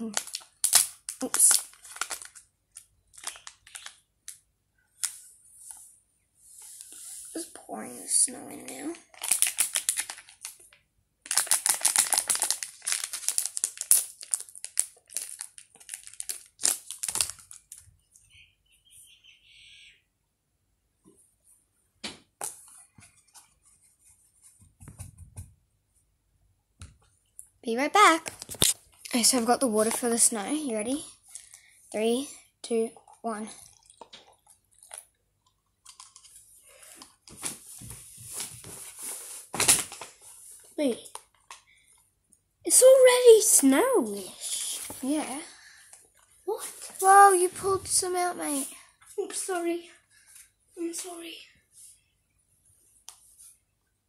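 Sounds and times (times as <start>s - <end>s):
plastic packet crinkling: 0.0s - 4.4s, 8.9s - 18.0s, 28.2s - 30.3s, 35.8s - 37.2s.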